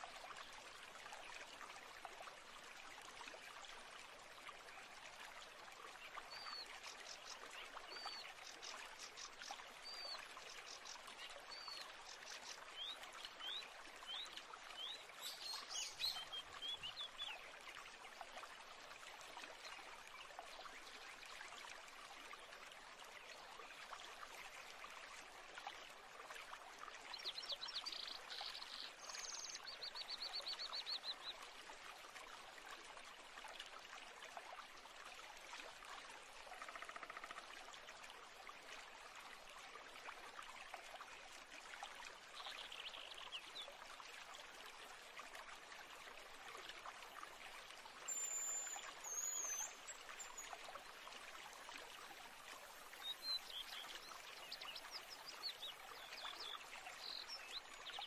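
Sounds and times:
trickling water: 0.0 - 58.0.

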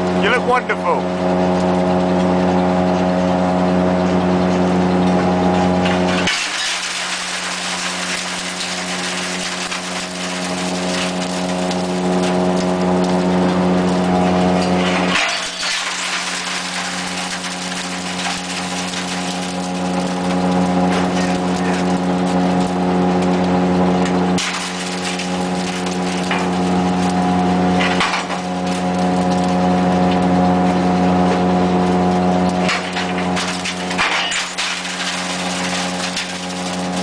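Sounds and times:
crusher machine humming: 0.0 - 37.0
glass being crushed: 6.1 - 11.6, 14.6 - 20.1, 24.4 - 26.7, 27.8 - 28.8, 32.6 - 37.0.

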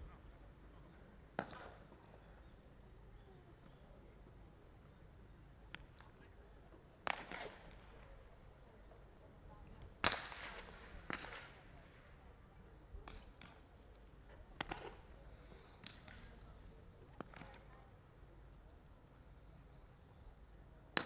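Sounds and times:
baseballs popping into gloves: 14.6 - 15.0, 15.8 - 16.4.

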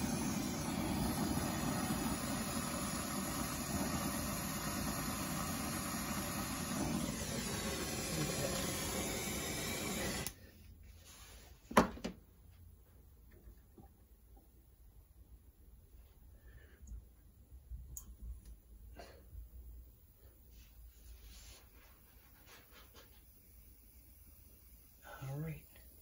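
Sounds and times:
torch flame rushing: 0.0 - 10.4.

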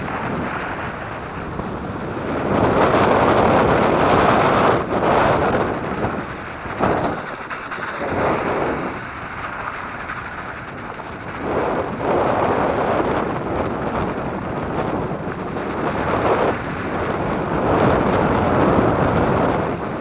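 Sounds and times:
tyres rumbling on dirt track: 0.0 - 20.0
wind rushing over microphone: 0.0 - 20.0.

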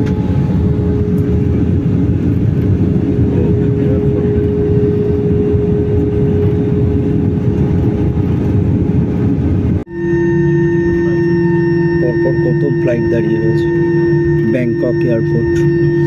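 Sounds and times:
jet engines and airflow rumble: 0.0 - 16.0
thin steady hum: 0.0 - 16.0.

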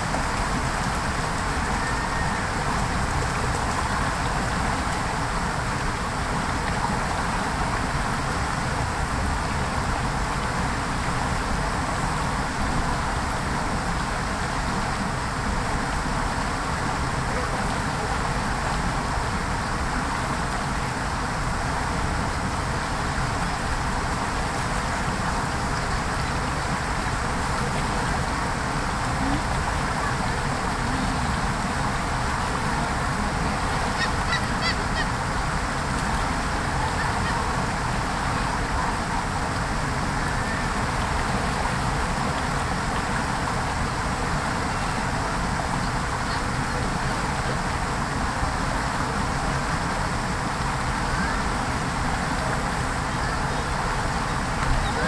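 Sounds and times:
creek water running over stones: 0.0 - 55.0
gull calling: 33.9 - 35.1.

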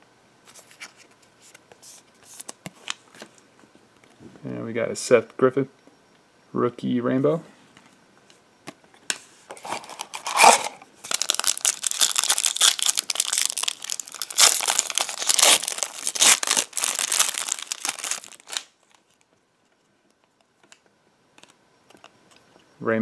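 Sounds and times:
wrapper tearing and crinkling: 9.6 - 19.2.

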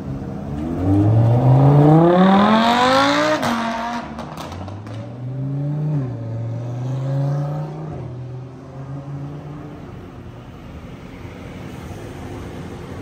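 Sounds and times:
sports car engine revving hard: 0.6 - 4.5.

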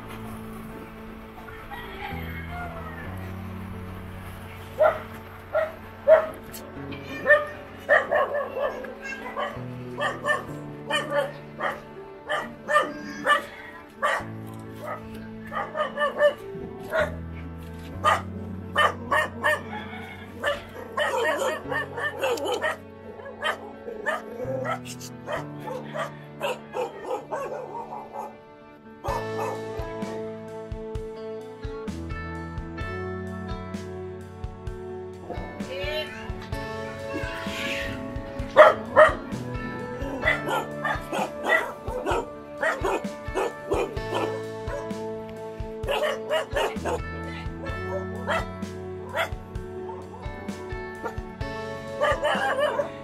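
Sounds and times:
background music with held notes: 0.0 - 53.0
dog barking: 4.8 - 6.4, 7.2 - 17.2, 18.0 - 28.4, 29.0 - 29.6, 38.5 - 39.3, 40.1 - 44.9, 45.9 - 47.0, 47.6 - 48.5, 49.1 - 50.2, 51.0 - 51.2, 52.0 - 53.0.

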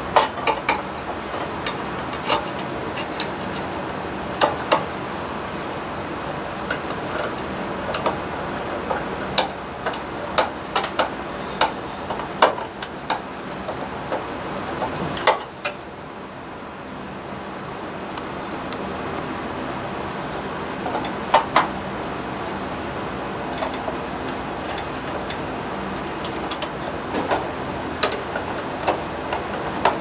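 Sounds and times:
screwdriver and screws clicking on metal: 0.0 - 4.9, 8.9 - 15.9, 23.5 - 30.0
steady hiss: 0.0 - 30.0.

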